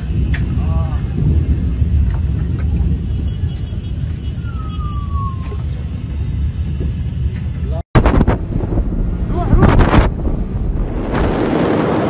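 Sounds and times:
wind buffeting microphone: 0:00.0 - 0:12.0
falling whistle-like tone: 0:04.4 - 0:05.7.

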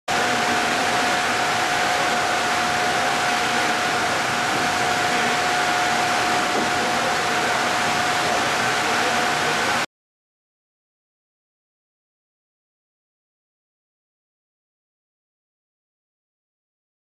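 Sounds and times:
machine blowing air: 0:00.1 - 0:09.9
machine whine: 0:00.1 - 0:09.9.

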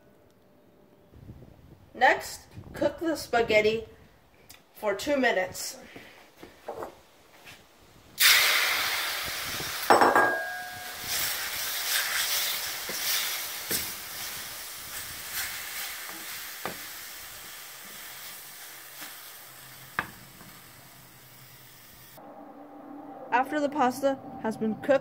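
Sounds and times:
noodles sizzling in a frying pan: 0:08.2 - 0:10.0, 0:10.6 - 0:22.2
ringing metallic clank: 0:09.9 - 0:11.0.

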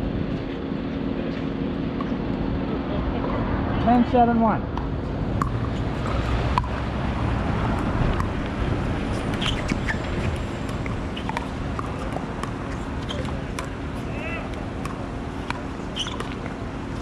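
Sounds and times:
paddles hitting plastic ball: 0:09.3 - 0:13.8.

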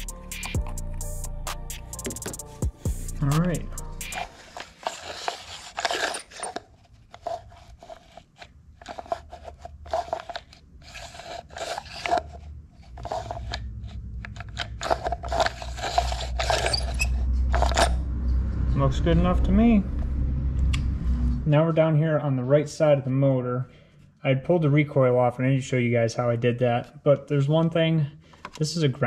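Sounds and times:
recoil starter scrapes and clicks: 0:04.0 - 0:18.0
low steady hum: 0:13.8 - 0:22.5.

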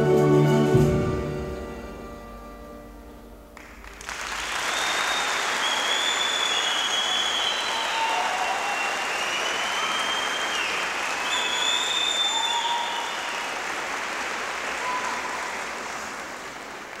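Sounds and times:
audience applauding: 0:03.6 - 0:17.0
high held whistles: 0:04.6 - 0:13.6.

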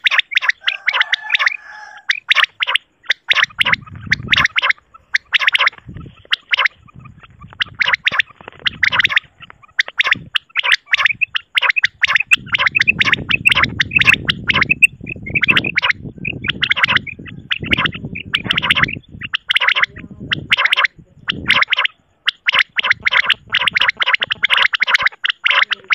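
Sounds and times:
quail calling: 0:00.0 - 0:25.9
low rumbling noise: 0:03.5 - 0:10.4.

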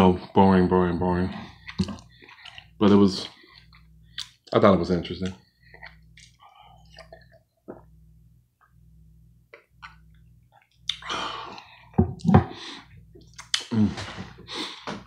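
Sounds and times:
man eating and drinking: 0:01.2 - 0:07.9, 0:09.5 - 0:15.0
low throat sounds: 0:13.6 - 0:14.4.

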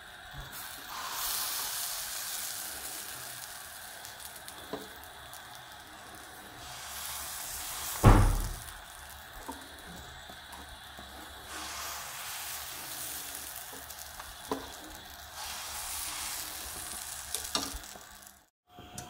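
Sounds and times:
batter sizzling on hot pan: 0:00.0 - 0:18.5
loud sudden thump: 0:08.0 - 0:08.7.

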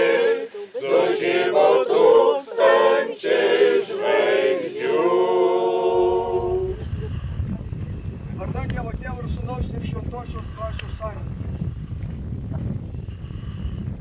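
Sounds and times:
choir singing a cappella: 0:00.0 - 0:07.0
wind rumble on microphone: 0:05.7 - 0:14.0.

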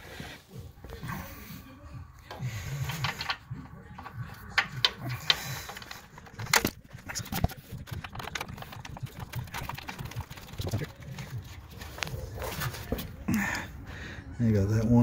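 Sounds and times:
tools clicking: 0:02.7 - 0:09.9.

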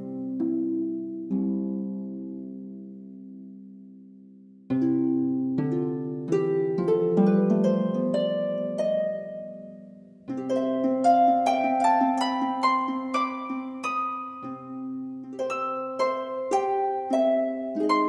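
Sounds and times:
plucked instrumental music: 0:04.7 - 0:18.0.

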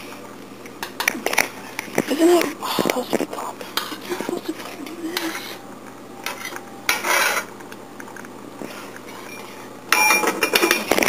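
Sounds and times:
metal spoon scraping saucepan: 0:06.3 - 0:07.5.

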